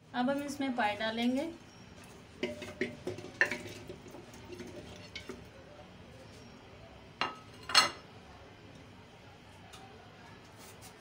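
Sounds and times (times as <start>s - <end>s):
meat knocking in clay pot: 2.3s - 5.4s.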